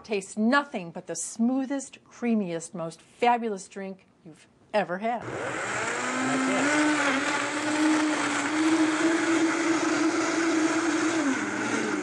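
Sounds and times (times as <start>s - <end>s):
blender motor whine: 5.2s - 12.0s.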